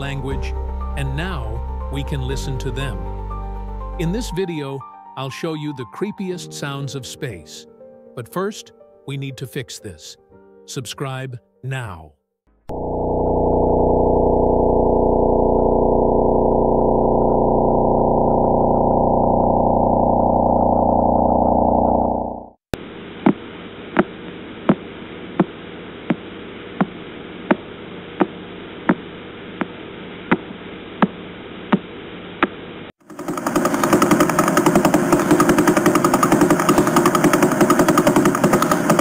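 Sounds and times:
dense electronic buzz: 12.5 - 23.5
sharp regular clicks: 33.0 - 39.0.

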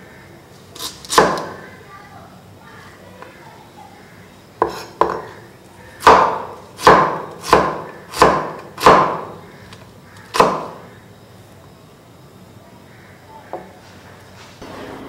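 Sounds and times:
knife chopping on wooden board: 0.8 - 1.5, 4.6 - 5.3, 6.0 - 9.3, 10.3 - 10.8.

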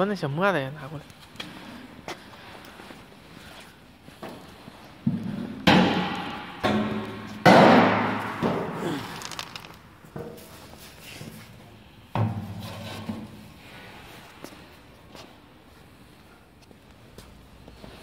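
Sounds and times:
powder tipped onto a board: 8.8 - 9.9.

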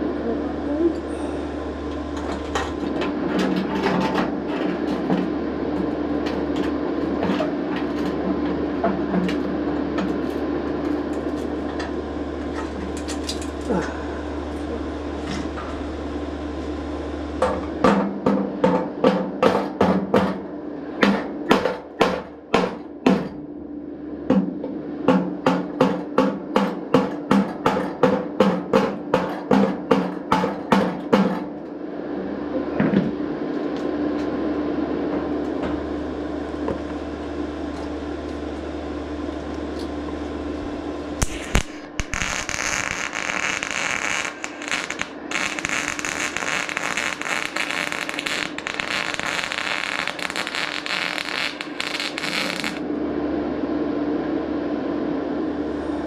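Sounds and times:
steady hum: 0.0 - 56.0
welding arc crackling: 41.2 - 52.8.

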